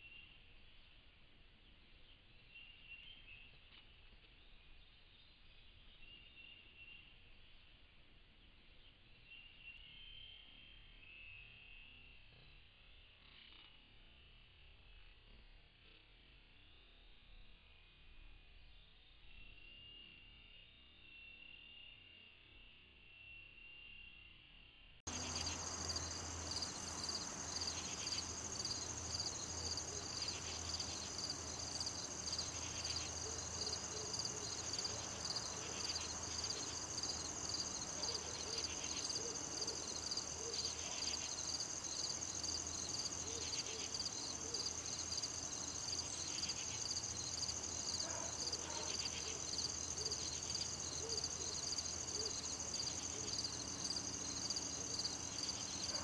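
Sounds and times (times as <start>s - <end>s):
low insect buzz: 10.8s - 56.0s
crickets trilling: 25.1s - 56.0s.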